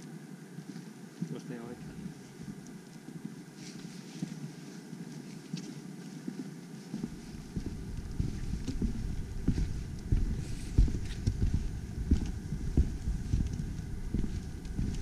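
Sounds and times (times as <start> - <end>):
footsteps on wooden boardwalk: 2.0 - 15.0.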